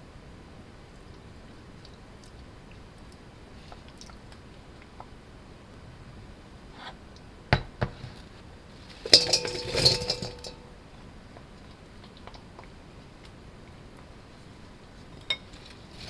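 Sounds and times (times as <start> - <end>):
onion chunks clattering into bowl: 9.0 - 10.8
steel bowl ringing: 9.1 - 10.8.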